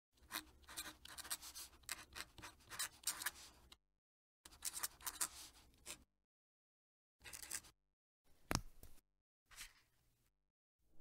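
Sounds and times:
pen nib scratching paper: 0:00.2 - 0:03.6, 0:04.5 - 0:06.0.

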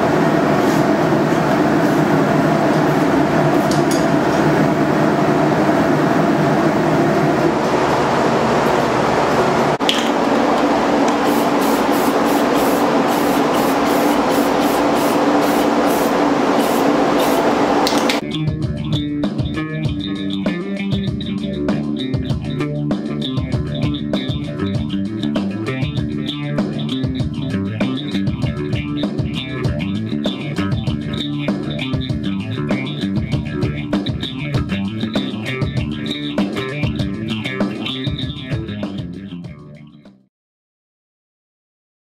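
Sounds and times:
steady beat: 0:11.1 - 0:39.8
guitar: 0:15.3 - 0:40.2
bass guitar: 0:17.9 - 0:40.3.

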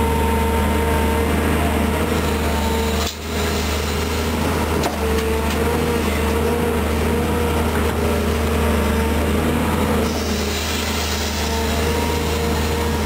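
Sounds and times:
excavator engine and hydraulics: 0:00.0 - 0:13.0
bucket dumping dirt: 0:02.6 - 0:07.1, 0:10.0 - 0:13.0.

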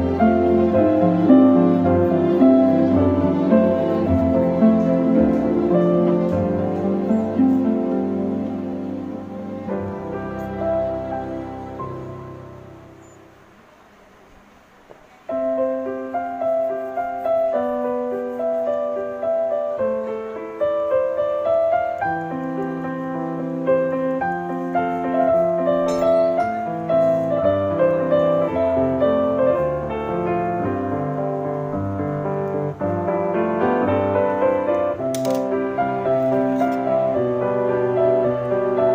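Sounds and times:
gentle piano music: 0:00.0 - 0:38.9.

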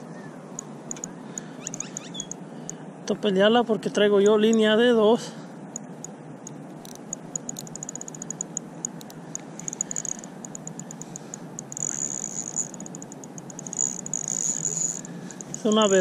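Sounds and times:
fishing reel drag clicking: 0:00.6 - 0:02.8, 0:05.8 - 0:16.0.

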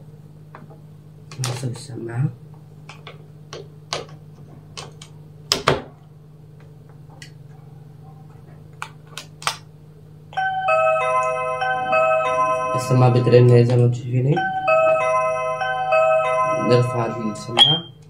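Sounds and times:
low steady hum: 0:00.0 - 0:18.0
intercom electronic chime: 0:10.4 - 0:18.0.

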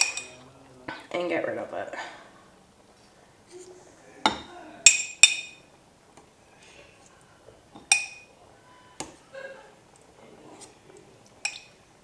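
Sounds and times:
metal spoon clinking on pot: 0:00.0 - 0:00.4, 0:04.3 - 0:05.6, 0:07.8 - 0:08.3, 0:11.4 - 0:11.8.

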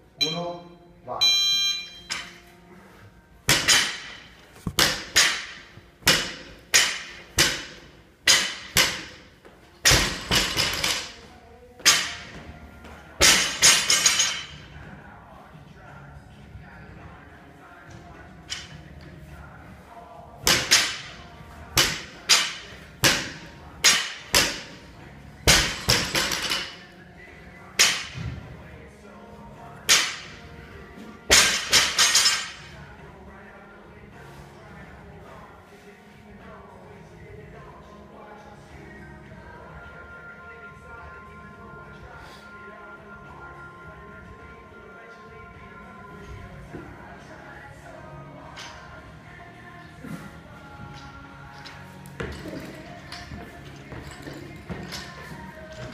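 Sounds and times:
weights hitting gym floor: 0:03.4 - 0:15.0, 0:17.9 - 0:19.1, 0:20.4 - 0:26.9, 0:27.7 - 0:28.6, 0:29.7 - 0:32.8, 0:48.4 - 0:49.4, 0:50.0 - 0:55.9
barbell bouncing and rattling: 0:09.8 - 0:11.2.

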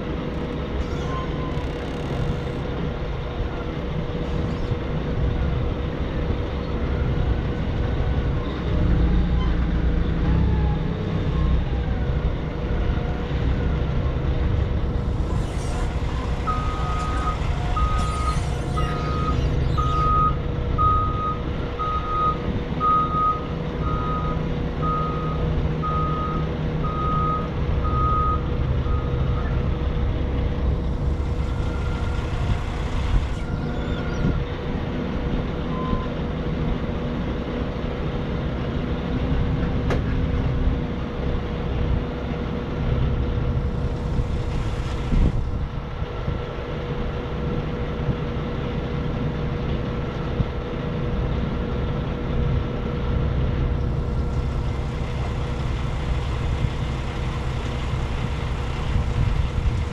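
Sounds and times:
forklift engine rumbling: 0:00.0 - 0:59.9
backup alarm beeping: 0:16.3 - 0:25.3.

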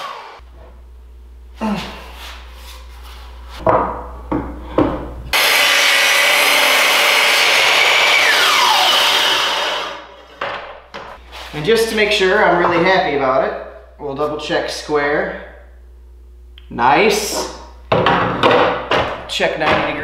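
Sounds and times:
miter saw cutting wood: 0:00.0 - 0:00.4, 0:05.3 - 0:10.2
wooden knocks: 0:17.9 - 0:20.0.

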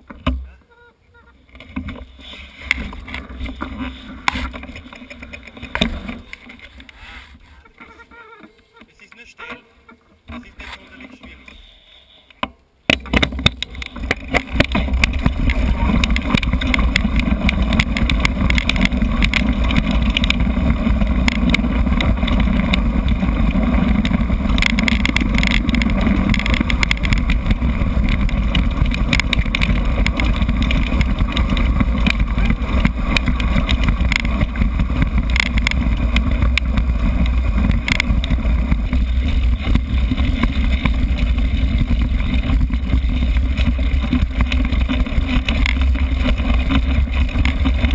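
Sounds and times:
bike rattling and knocking: 0:01.5 - 0:07.0, 0:12.8 - 0:47.9
wind rumble on microphone: 0:13.3 - 0:47.9.

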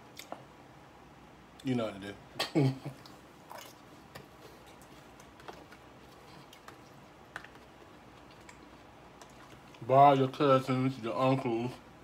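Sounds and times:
room hiss: 0:00.0 - 0:12.0
clicks and taps of eating salad: 0:03.0 - 0:05.8, 0:06.4 - 0:09.8.

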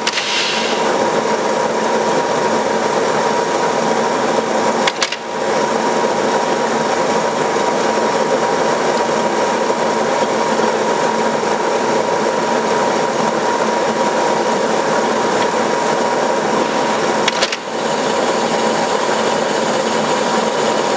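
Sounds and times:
lathe mechanical clatter: 0:00.0 - 0:20.9
machine whine: 0:00.0 - 0:20.9.

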